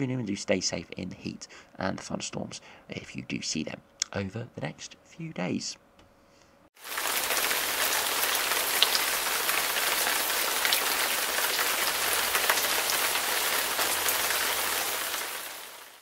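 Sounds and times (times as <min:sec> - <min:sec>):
heavy rain falling: 0:06.8 - 0:16.0.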